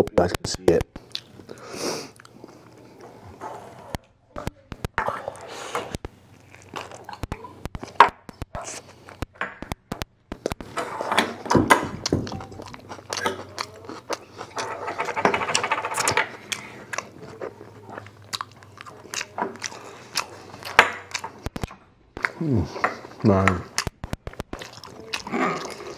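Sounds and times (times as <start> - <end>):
man chewing food: 0.7 - 25.9
wet mouth clicks and smacks: 23.7 - 25.8.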